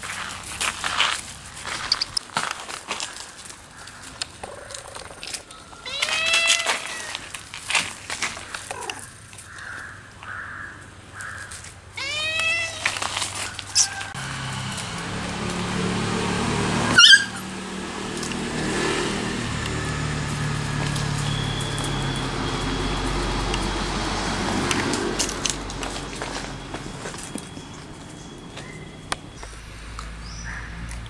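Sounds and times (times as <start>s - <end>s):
cat meowing: 5.8s - 7.2s, 12.0s - 13.0s.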